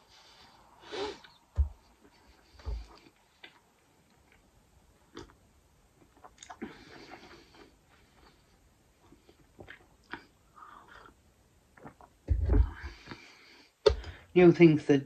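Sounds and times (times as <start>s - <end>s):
person chewing food: 1.1s - 12.2s
dull thumps: 1.5s - 1.9s.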